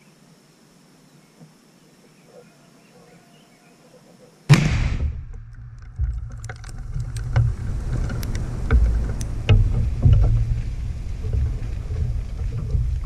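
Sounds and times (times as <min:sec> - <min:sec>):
explosion blast: 0:04.5 - 0:06.2
debris ticking down: 0:04.5 - 0:13.0
heavy low rumble: 0:04.5 - 0:13.0.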